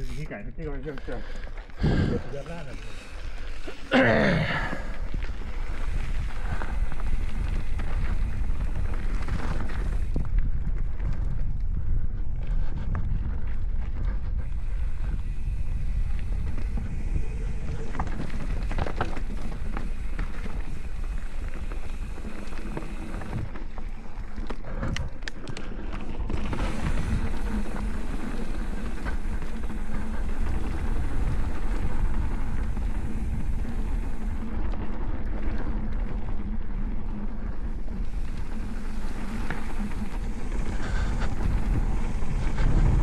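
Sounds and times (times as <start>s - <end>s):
tyre and wind noise: 0.0s - 43.0s
bike clacks and rattles: 1.0s - 43.0s.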